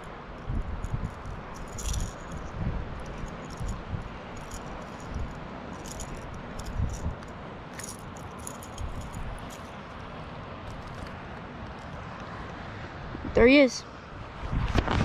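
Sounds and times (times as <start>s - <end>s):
wind buffeting microphone: 0.0s - 9.6s, 14.2s - 15.0s
fishing lure rattling: 0.3s - 10.0s, 10.7s - 12.0s.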